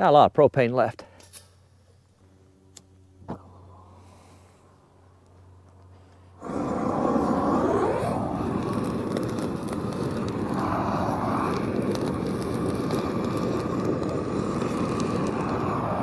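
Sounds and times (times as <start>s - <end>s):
torch flame rushing: 6.3s - 16.0s.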